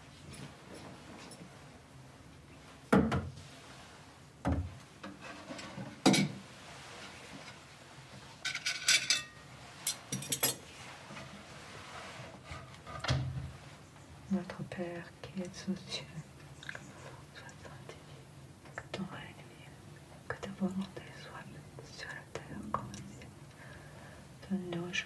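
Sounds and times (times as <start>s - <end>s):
cutlery clinking on glass plate: 8.4s - 10.6s.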